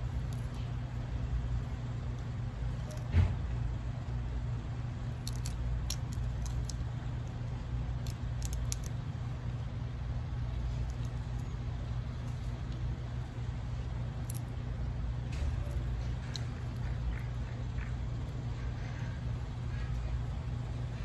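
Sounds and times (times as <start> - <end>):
steady low rumble: 0.0 - 21.0
thump: 3.1 - 3.4
shrimp shells cracking: 5.0 - 9.0, 14.2 - 14.5.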